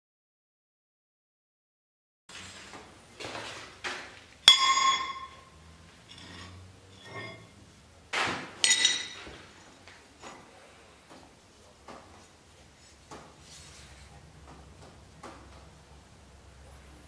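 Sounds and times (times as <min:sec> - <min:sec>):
metal tool clanking: 0:04.4 - 0:07.6, 0:08.6 - 0:09.4
steel bar clanging on anvil: 0:04.4 - 0:07.6, 0:08.6 - 0:09.3.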